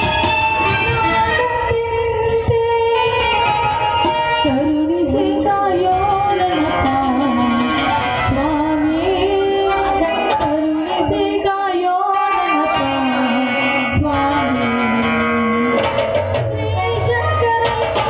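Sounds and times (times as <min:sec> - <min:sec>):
instruments accompanying: 0:00.0 - 0:18.0.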